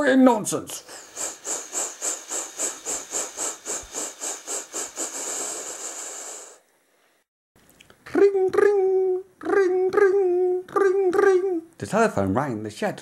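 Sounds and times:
steam locomotive chuffing: 0.8s - 6.5s.

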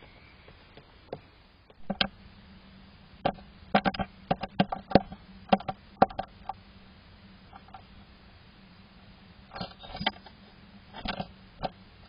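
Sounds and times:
faint steady hum: 0.0s - 12.0s
bird tapping on wood: 1.8s - 2.1s, 3.2s - 6.3s.

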